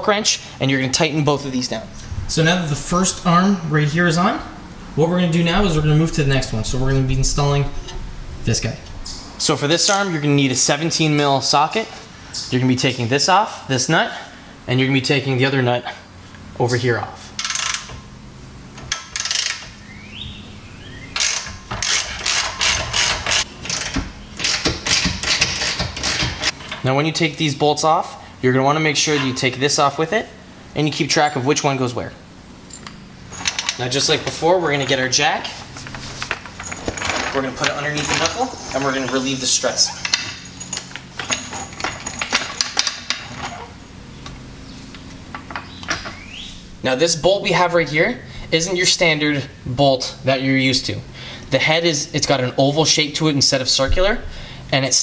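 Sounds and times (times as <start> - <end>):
floor jack metallic clicks and clanks: 21.2 - 26.8, 35.8 - 38.4.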